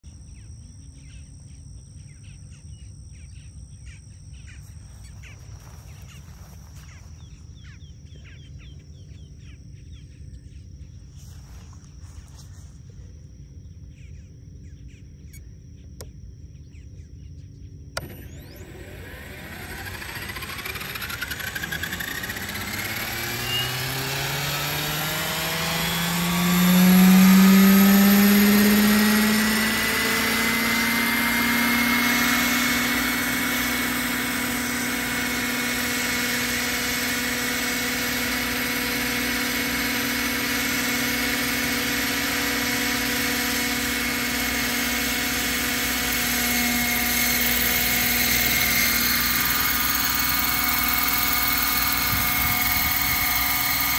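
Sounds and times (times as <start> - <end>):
rc helicopter motor whine: 0.0 - 13.9, 17.2 - 53.9.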